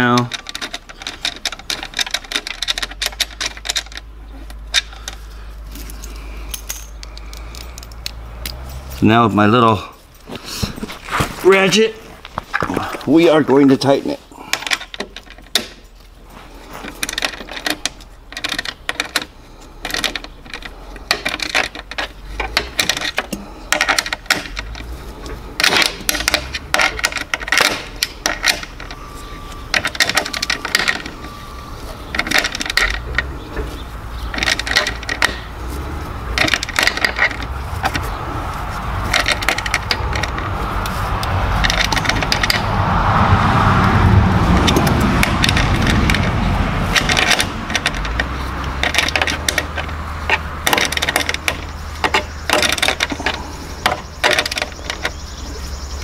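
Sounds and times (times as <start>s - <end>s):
low rumble: 24.6s - 52.0s.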